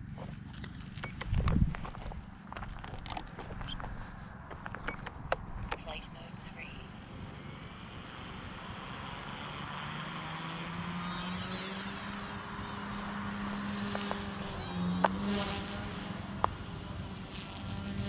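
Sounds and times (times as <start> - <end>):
sharp clicks: 0.6 - 1.6, 4.5 - 6.0, 13.8 - 15.2
toy helicopter motor whine: 6.8 - 18.0.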